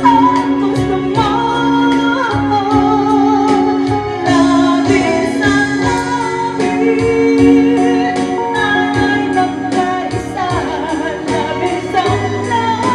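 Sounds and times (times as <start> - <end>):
electric guitar: 0.0 - 12.9
woman singing into microphone: 0.0 - 12.9
steady drum beat: 3.5 - 12.9.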